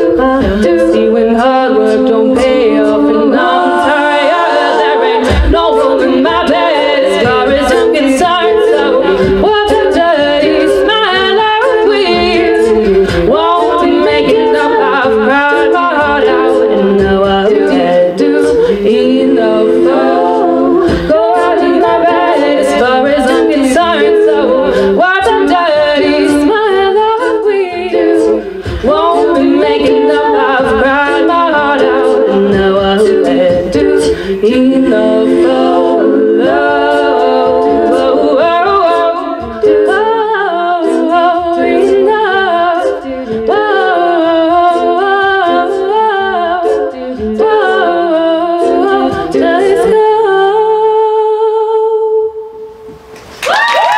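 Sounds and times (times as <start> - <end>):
female a cappella group singing: 0.0 - 53.1.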